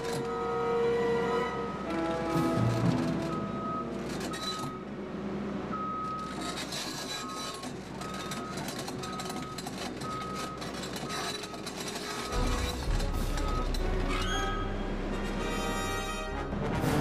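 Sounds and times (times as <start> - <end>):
diesel engine running: 0.0 - 17.0
travel alarm beeping: 2.8 - 4.9, 5.7 - 6.4, 7.1 - 14.9
machine clattering: 6.4 - 14.6.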